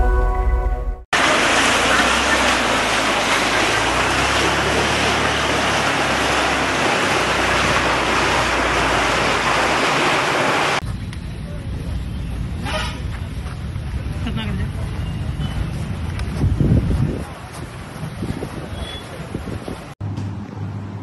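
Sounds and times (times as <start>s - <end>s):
logo jingle: 0.0s - 1.0s
water rushing: 1.1s - 10.8s.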